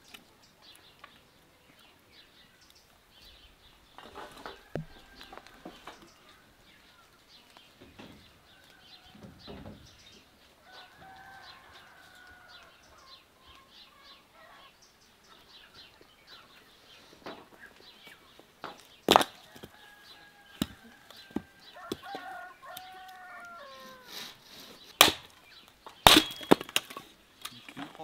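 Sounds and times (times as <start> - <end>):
small birds chirping: 0.0 - 28.0
axe striking log: 19.1 - 19.7, 25.0 - 25.3, 26.0 - 27.0
hen clucking: 19.8 - 24.9.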